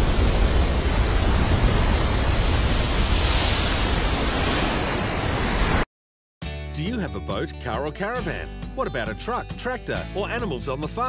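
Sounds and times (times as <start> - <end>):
wind noise: 0.0 - 5.8
ocean wave breaking: 0.0 - 5.9.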